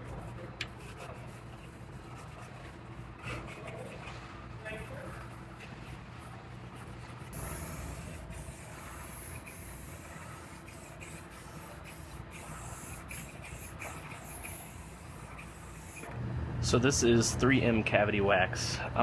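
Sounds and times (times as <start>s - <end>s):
aerosol can spraying: 7.4s - 16.0s.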